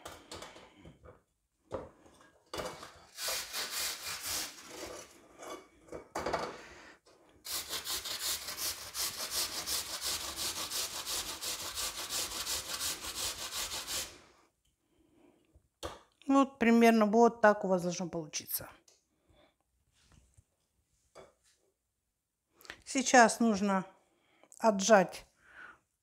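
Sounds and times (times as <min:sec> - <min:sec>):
potato grating on metal grater: 0:03.1 - 0:05.2, 0:07.5 - 0:14.2.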